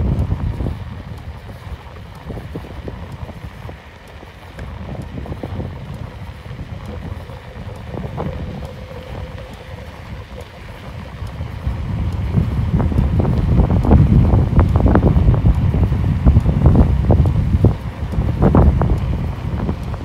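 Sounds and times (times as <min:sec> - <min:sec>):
faint steady hum: 0:00.0 - 0:20.0
wind buffeting microphone: 0:00.0 - 0:20.0.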